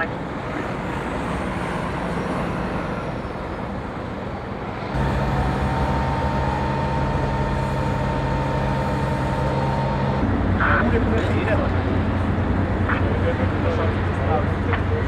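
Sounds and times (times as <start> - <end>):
heavy vehicle engines idling: 2.1 - 15.0
thin high whine: 5.0 - 10.7.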